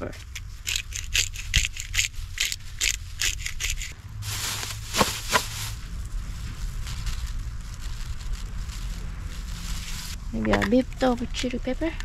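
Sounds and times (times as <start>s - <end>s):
pepper shaker rattling: 0.2s - 5.8s
plastic bag crinkling: 2.1s - 10.2s.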